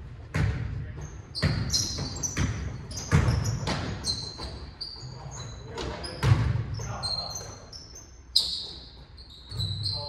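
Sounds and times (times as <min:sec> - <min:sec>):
basketball bouncing on hardwood: 0:00.3 - 0:00.7, 0:01.4 - 0:04.6
sneakers squeaking on floor: 0:00.3 - 0:10.0.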